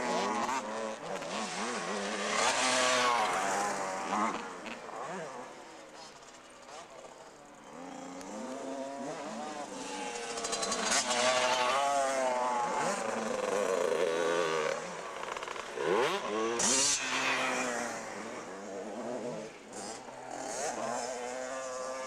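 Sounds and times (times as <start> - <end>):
motocross bike engines revving: 0.0 - 22.0.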